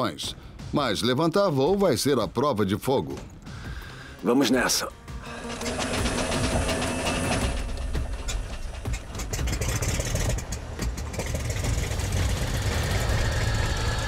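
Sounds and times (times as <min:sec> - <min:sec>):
propeller plane engine idling: 0:05.1 - 0:14.0.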